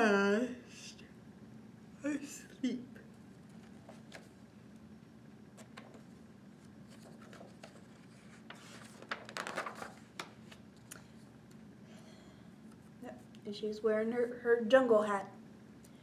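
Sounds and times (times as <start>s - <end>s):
faint low hum: 0.0s - 16.0s
book page rustling and turning: 3.4s - 4.4s, 5.6s - 10.7s.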